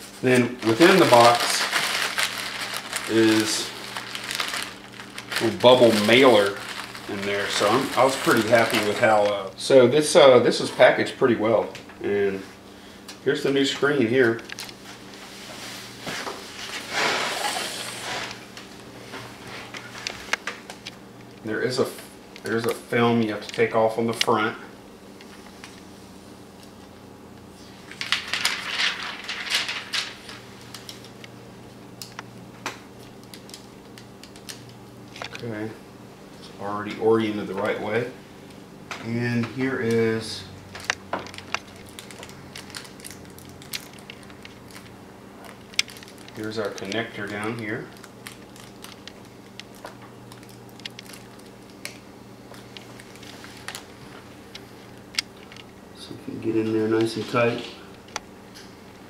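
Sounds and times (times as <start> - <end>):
faint steady hum: 0.0 - 59.0
plastic film peeling and crinkling: 0.2 - 9.5, 13.8 - 15.3, 27.6 - 31.3, 32.9 - 35.6, 39.6 - 55.8.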